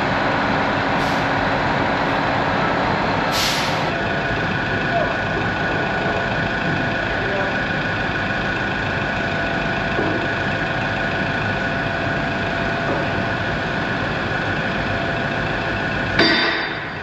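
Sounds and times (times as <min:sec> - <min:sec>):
diesel engine idling: 0:00.0 - 0:17.0
loud ringing knock: 0:16.2 - 0:17.0.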